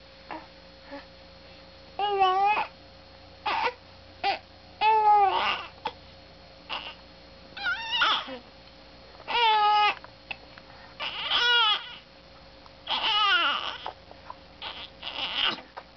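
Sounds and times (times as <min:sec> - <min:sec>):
infant crying: 0:02.0 - 0:02.7, 0:03.5 - 0:05.7, 0:06.7 - 0:07.0, 0:07.6 - 0:08.4, 0:09.3 - 0:10.0, 0:11.0 - 0:12.0, 0:12.9 - 0:14.0, 0:14.6 - 0:15.7.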